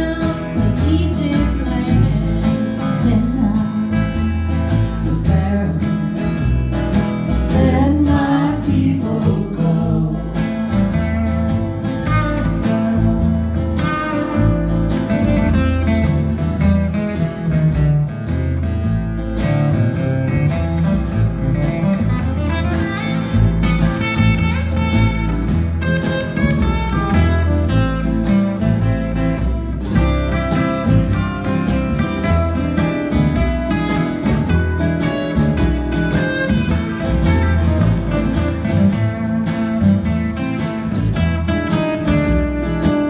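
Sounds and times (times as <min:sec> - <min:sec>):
acoustic guitars strumming: 0:00.0 - 0:43.0
plucked upright bass: 0:00.0 - 0:43.0
person singing: 0:07.5 - 0:10.7.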